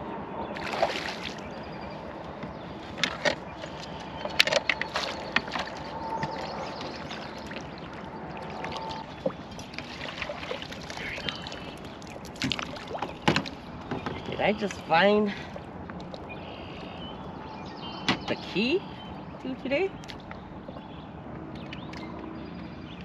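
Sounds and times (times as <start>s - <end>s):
water splashing and sloshing: 0.5s - 23.0s.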